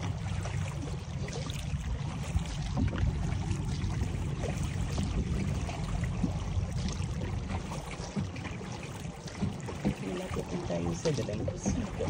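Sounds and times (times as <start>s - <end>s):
water splashing along boat hull: 0.0s - 12.0s.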